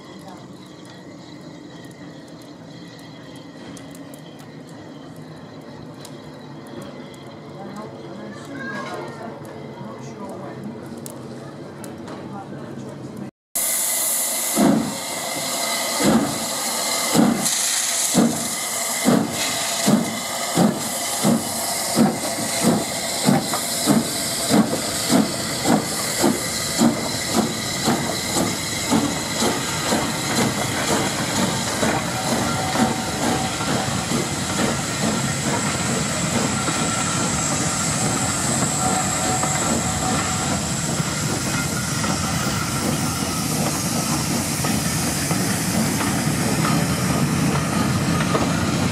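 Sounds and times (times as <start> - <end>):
steam hissing: 13.6 - 48.9
steam locomotive exhaust chuffs: 13.6 - 48.9.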